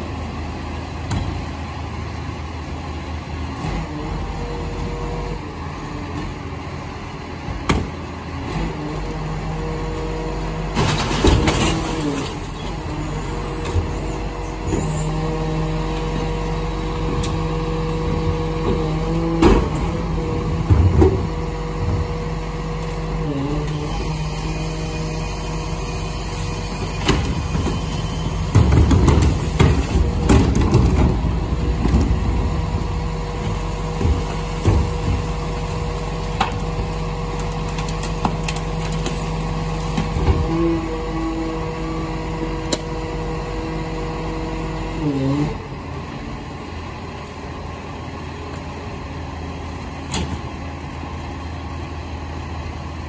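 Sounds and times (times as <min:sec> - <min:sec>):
bin bangs and rattles: 0:28.4 - 0:32.7.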